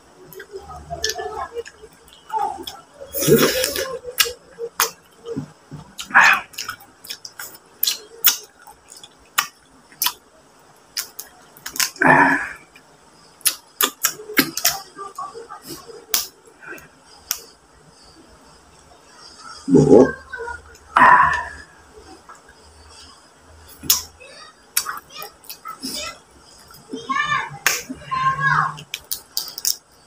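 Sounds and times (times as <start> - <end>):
lip-smacks: 0.3 - 10.2, 10.9 - 12.0, 12.8 - 14.9, 15.6 - 17.6, 23.7 - 24.2, 24.8 - 26.9, 28.8 - 29.9
sucking sounds: 2.6 - 4.1, 19.1 - 20.2, 21.0 - 22.2.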